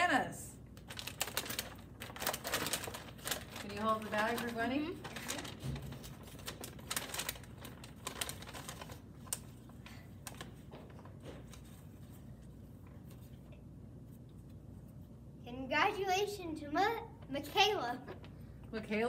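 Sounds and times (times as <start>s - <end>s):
paper and bag crinkling: 0.8s - 12.2s.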